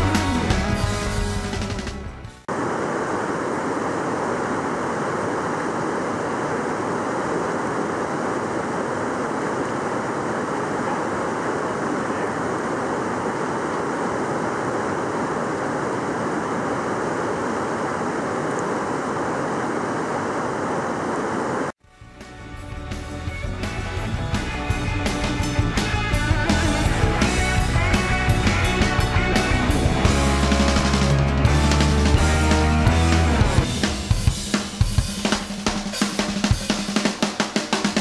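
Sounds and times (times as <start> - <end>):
river rushing over rocks: 2.5 - 21.7.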